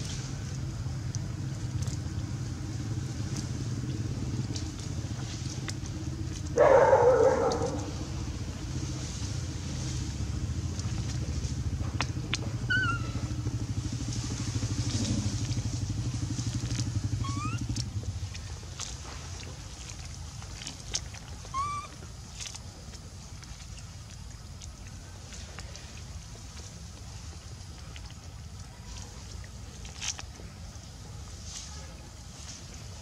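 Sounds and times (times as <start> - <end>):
low motor hum: 0.0 - 33.0
short rising squeaks: 12.6 - 13.3, 17.2 - 17.6.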